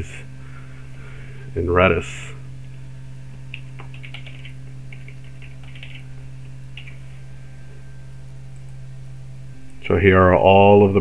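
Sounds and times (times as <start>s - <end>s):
low electrical hum: 0.0s - 11.0s
keyboard typing: 3.5s - 7.1s.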